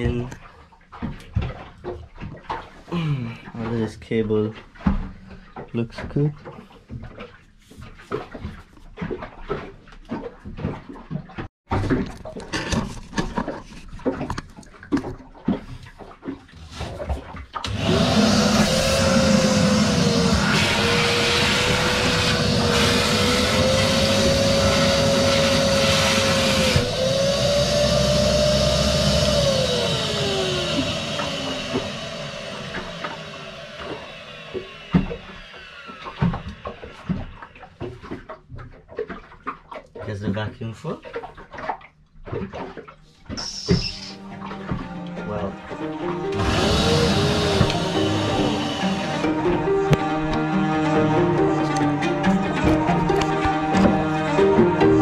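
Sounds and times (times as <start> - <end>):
wet dry vacuum running: 17.6 - 37.3, 43.4 - 55.0.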